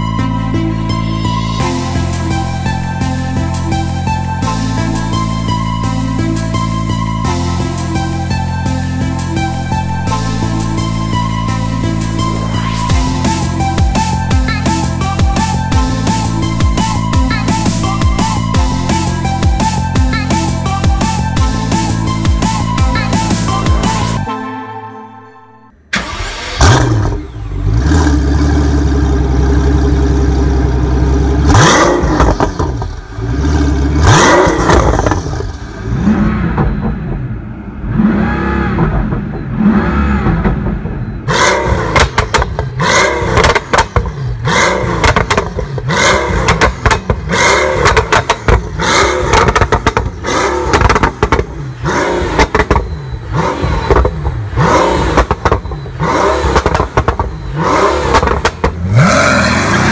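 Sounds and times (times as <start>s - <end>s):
car engine revving: 0.0s - 24.3s, 25.8s - 59.9s
exhaust crackles: 25.9s - 59.9s.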